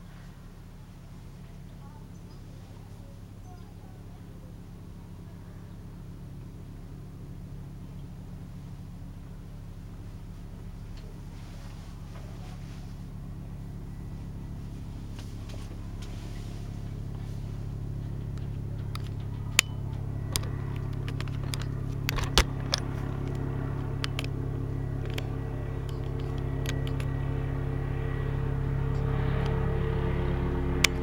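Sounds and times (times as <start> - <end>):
helicopter flying overhead: 0.0 - 31.0
sharp clicks: 18.0 - 27.3.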